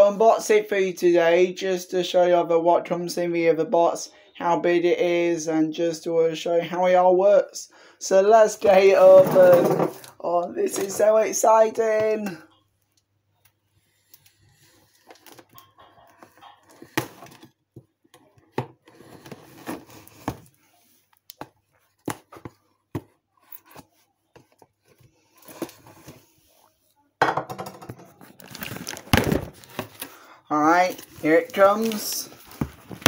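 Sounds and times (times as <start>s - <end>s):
cardboard box being opened: 18.8s - 20.6s, 28.4s - 30.1s
box thump: 29.0s - 30.0s.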